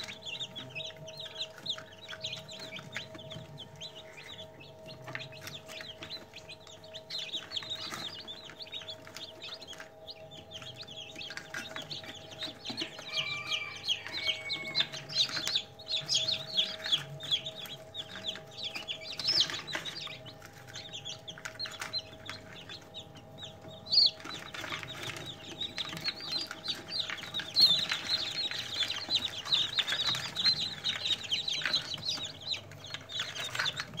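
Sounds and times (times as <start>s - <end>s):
chicks peeping: 0.0s - 34.0s.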